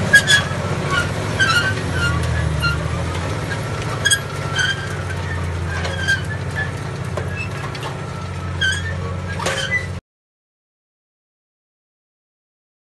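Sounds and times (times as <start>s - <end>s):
tractor engine under load: 0.0s - 10.0s.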